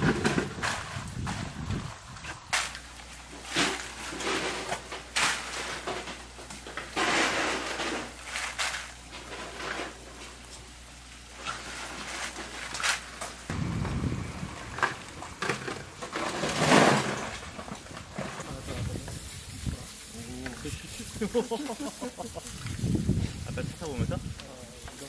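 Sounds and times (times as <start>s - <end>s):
low hum: 13.4s - 23.4s.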